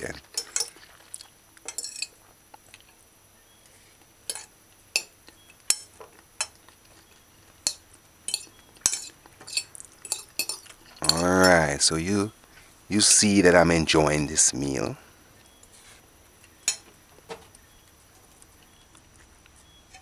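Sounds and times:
cutlery clinking on a plate: 0:00.3 - 0:00.8, 0:01.6 - 0:02.2, 0:04.3 - 0:06.6, 0:07.6 - 0:11.7, 0:16.6 - 0:17.4.

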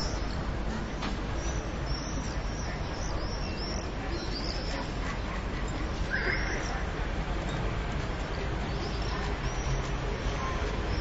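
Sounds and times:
distant traffic rumble: 0:00.0 - 0:11.0
swallows twittering: 0:01.4 - 0:05.0, 0:08.6 - 0:11.0.

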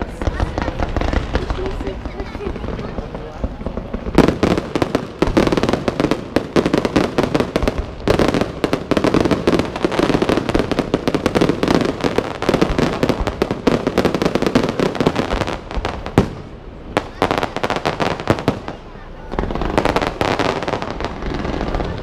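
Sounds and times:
fireworks bursting and crackling: 0:00.0 - 0:22.0.

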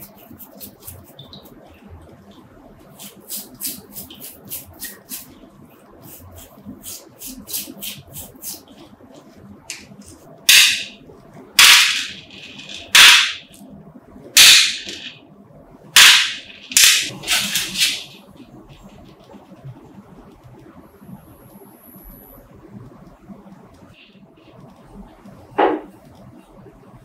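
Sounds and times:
toothbrush scrubbing: 0:00.0 - 0:01.6, 0:02.8 - 0:05.4, 0:06.0 - 0:08.9.

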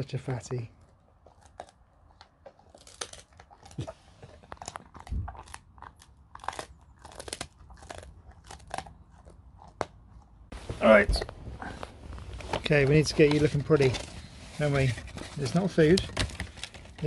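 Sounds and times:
dog crunching bone: 0:00.7 - 0:10.4.

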